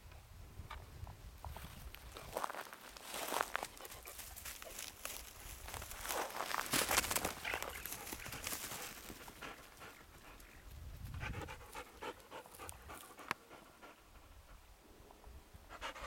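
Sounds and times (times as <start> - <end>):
footsteps through dry grass: 1.4 - 11.1
dog panting: 7.3 - 10.6, 11.2 - 14.7, 15.7 - 16.0.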